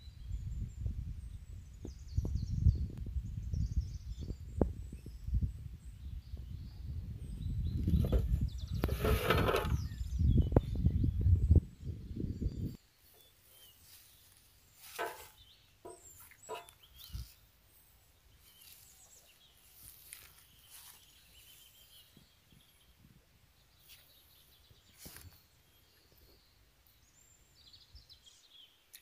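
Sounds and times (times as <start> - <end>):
animal and bird calls: 12.6 - 22.9.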